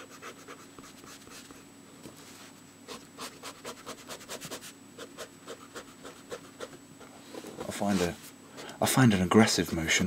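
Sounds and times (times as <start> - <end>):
pen nib scratching on paper: 2.9 - 6.8.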